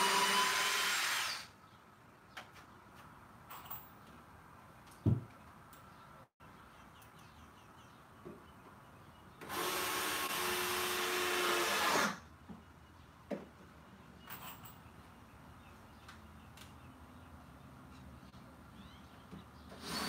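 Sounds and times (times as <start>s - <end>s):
power drill driving screw into wood: 0.0s - 1.5s, 9.4s - 12.2s, 19.7s - 20.0s.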